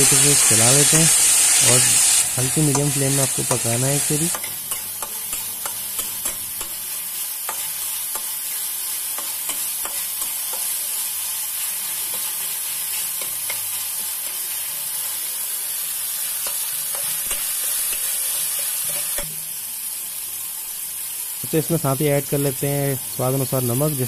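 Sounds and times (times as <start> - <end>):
vegetables sizzling in oil: 0.0 - 24.0
spatula scraping and tapping pan: 2.6 - 6.8, 7.4 - 8.4, 9.1 - 10.8, 12.9 - 14.4, 16.4 - 19.4.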